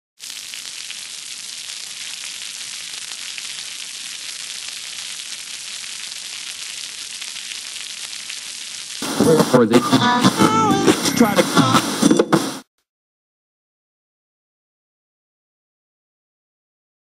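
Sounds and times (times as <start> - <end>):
static hiss with crackles: 0.2 - 12.7.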